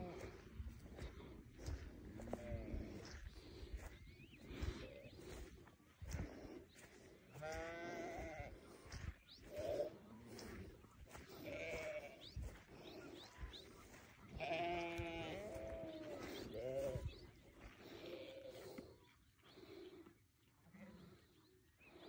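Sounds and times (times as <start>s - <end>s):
sheep bleating: 7.3s - 8.6s, 11.2s - 12.4s, 14.3s - 17.2s.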